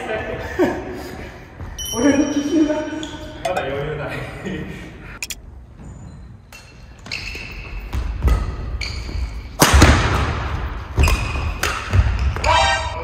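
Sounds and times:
sneakers squeaking on wooden floor: 1.6 - 3.6, 5.7 - 9.6
racket hitting shuttlecock: 11.0 - 12.5.

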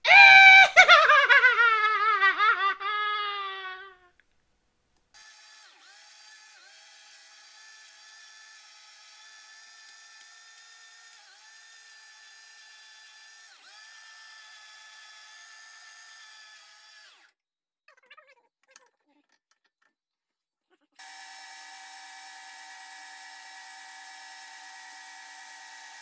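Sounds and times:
electric meat grinder whining: 5.2 - 17.4, 21.0 - 26.0.

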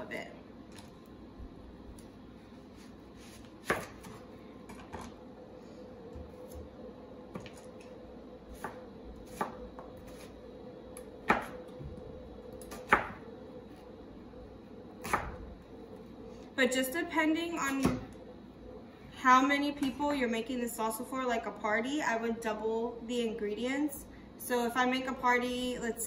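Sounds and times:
knife slicing onion on board: 2.7 - 4.2, 8.5 - 10.4, 11.3 - 11.6.

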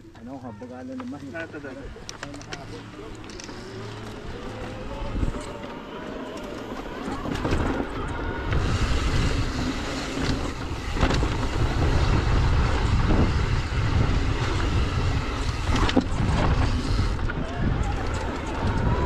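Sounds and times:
wind buffeting microphone: 7.1 - 19.0.

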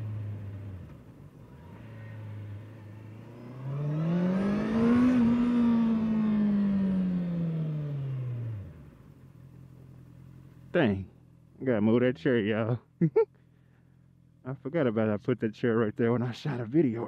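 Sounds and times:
motorcycle engine revving: 0.0 - 10.6.

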